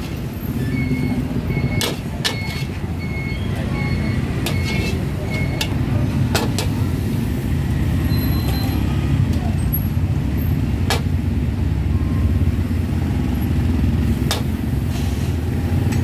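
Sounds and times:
metal spatula scraping wok: 0:01.7 - 0:02.9, 0:04.2 - 0:05.8.

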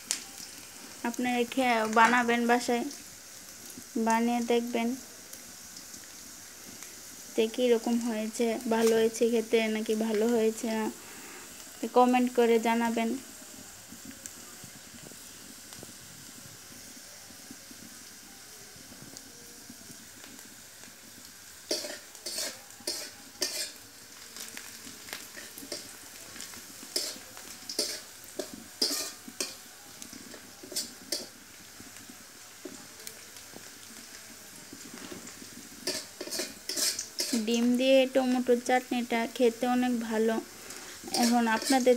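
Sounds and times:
onions sizzling in hot oil: 0:00.0 - 0:41.9
metal spatula scraping pan: 0:21.7 - 0:23.8, 0:26.9 - 0:29.6, 0:35.8 - 0:37.5, 0:40.6 - 0:41.9.

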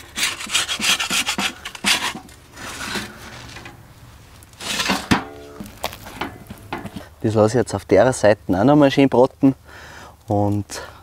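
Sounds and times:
metal spatula scraping baking stone: 0:00.0 - 0:03.8, 0:04.6 - 0:07.1.

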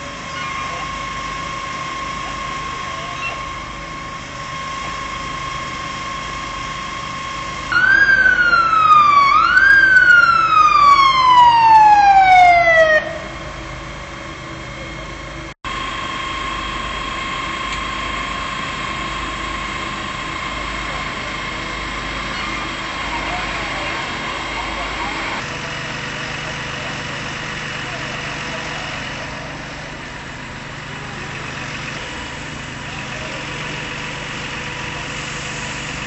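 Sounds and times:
siren wailing: 0:00.0 - 0:13.9
high-pitched whine: 0:00.0 - 0:27.2.

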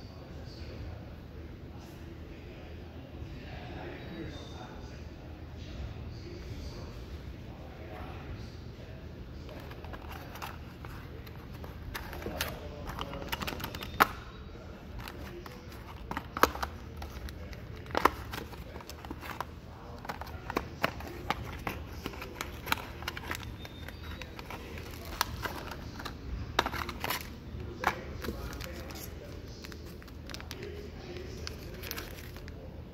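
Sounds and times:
handling cardboard box: 0:09.5 - 0:14.2, 0:14.9 - 0:32.4.

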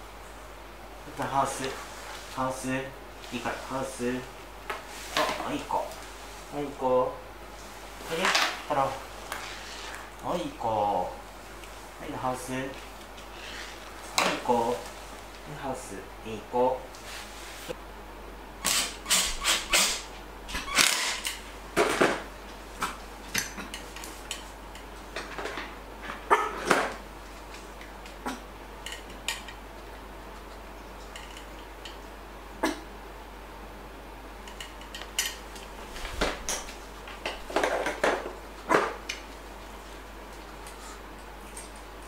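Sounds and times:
dog barking: 0:26.3 - 0:26.6.

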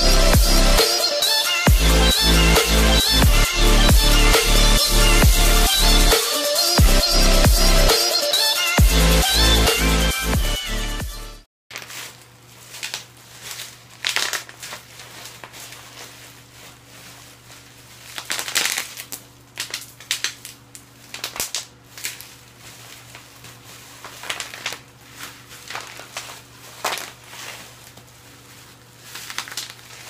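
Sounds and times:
bubble wrap sharp snap: 0:11.7 - 0:16.2, 0:18.0 - 0:24.9, 0:29.1 - 0:30.0
bubble wrap crinkling: 0:11.7 - 0:30.0.

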